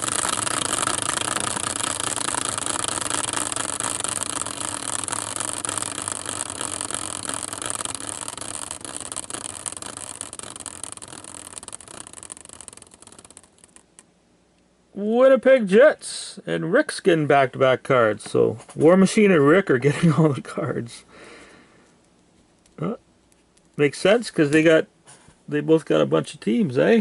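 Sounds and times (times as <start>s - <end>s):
caster wheel spinning and whirring: 0.0s - 14.1s.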